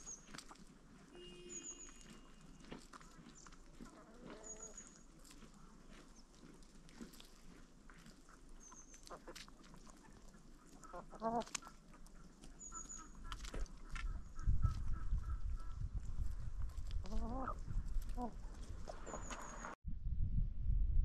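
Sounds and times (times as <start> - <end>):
hens calling: 0.0 - 6.4, 8.0 - 16.0, 16.7 - 19.8
pecking and scratching ticks: 0.0 - 19.7
small bird twittering: 12.6 - 15.7.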